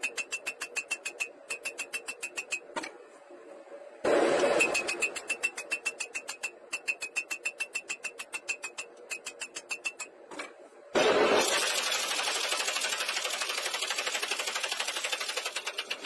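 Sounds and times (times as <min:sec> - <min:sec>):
loud mechanical clatter: 0:11.0 - 0:16.0.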